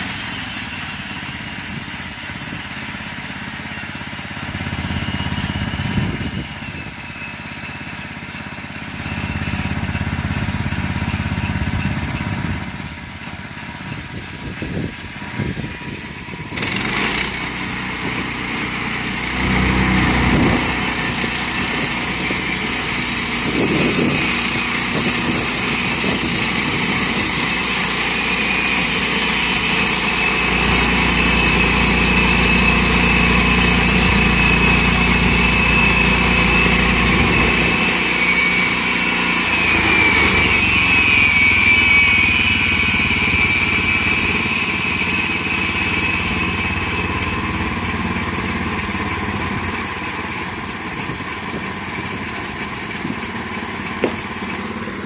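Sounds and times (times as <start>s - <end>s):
high blade whine: 0.0s - 55.0s
sawmill engine running: 0.0s - 55.0s
band blade cutting log: 16.5s - 42.1s, 53.9s - 55.0s.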